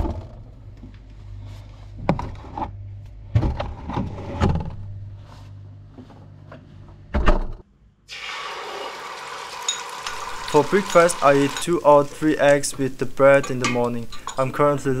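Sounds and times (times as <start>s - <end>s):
refrigerator hum: 0.0s - 8.0s.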